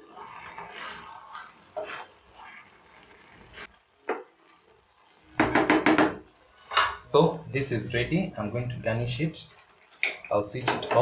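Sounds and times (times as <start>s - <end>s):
spatula stirring saucy pasta: 0.0s - 5.6s
spatula tapping pan: 4.0s - 4.3s, 5.4s - 7.0s.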